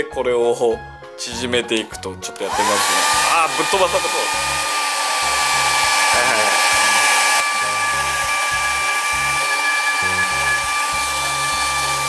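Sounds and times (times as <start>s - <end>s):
hair dryer blowing: 2.4s - 12.0s.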